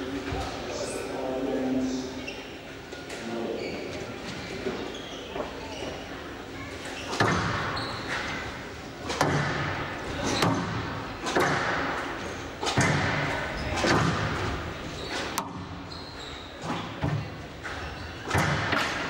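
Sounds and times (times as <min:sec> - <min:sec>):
squash ball hits echoing: 0:07.1 - 0:07.8, 0:09.0 - 0:14.6, 0:16.6 - 0:19.0.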